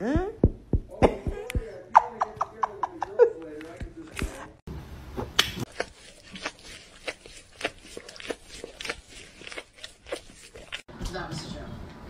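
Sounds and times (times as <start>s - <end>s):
cat chewing with crunching clicks: 5.7s - 10.9s.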